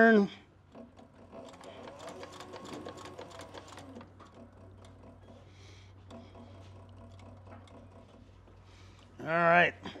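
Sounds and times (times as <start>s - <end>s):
sewing machine stitching leather: 0.7s - 8.3s.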